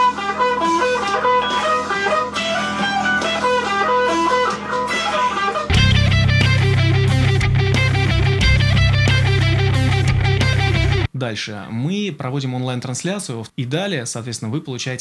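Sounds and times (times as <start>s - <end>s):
electric guitar single notes: 0.2s - 11.1s
bass-heavy electric guitar: 5.7s - 11.1s.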